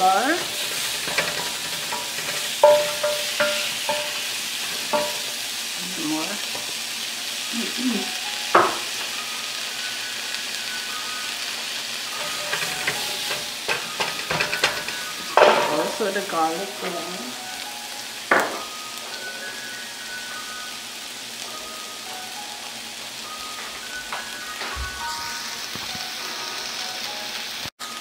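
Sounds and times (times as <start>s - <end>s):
spatula scraping a pan: 0.0s - 6.8s, 11.4s - 17.0s, 19.0s - 20.4s
onions sizzling in a pan: 0.0s - 28.0s.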